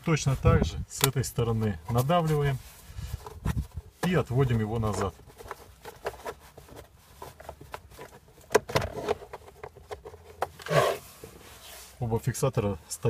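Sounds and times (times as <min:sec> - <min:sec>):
plastic clicks and rubbing: 0:03.2 - 0:10.8.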